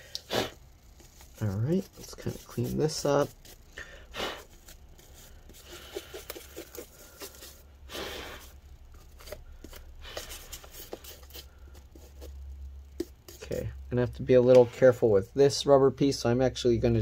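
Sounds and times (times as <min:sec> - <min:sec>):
rustling and scraping: 0:00.4 - 0:03.7, 0:04.4 - 0:13.5.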